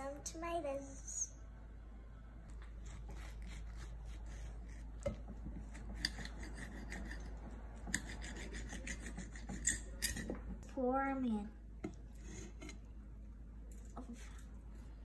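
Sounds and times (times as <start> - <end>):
knife cutting tomato on plate: 2.8 - 10.4.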